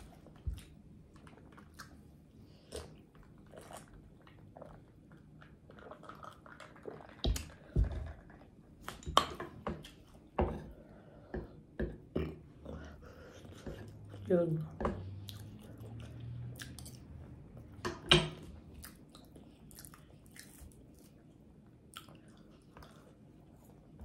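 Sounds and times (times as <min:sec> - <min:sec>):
chewing and mouth smacking: 0:00.0 - 0:07.6, 0:15.2 - 0:17.7, 0:18.6 - 0:24.0.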